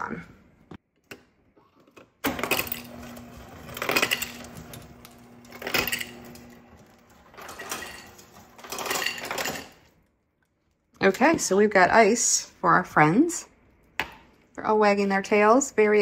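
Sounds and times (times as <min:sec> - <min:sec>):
ice dispenser motor hum: 0:01.7 - 0:09.9
ice cubes clattering into container: 0:02.5 - 0:09.9.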